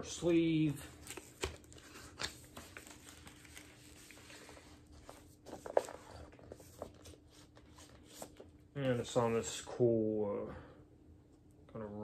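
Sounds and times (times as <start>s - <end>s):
paper sleeve rustling: 0.7s - 9.2s.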